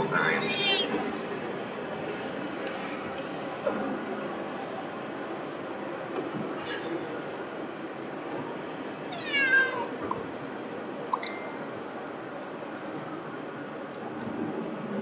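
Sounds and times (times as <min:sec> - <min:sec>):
road noise: 0:00.0 - 0:15.0
cat meowing: 0:00.4 - 0:01.0, 0:09.1 - 0:10.0.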